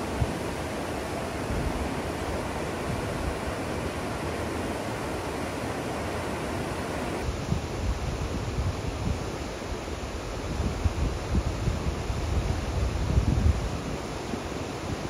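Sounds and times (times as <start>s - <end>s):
river rapids rushing over rocks: 0.0s - 7.2s
wind on microphone: 0.0s - 15.0s.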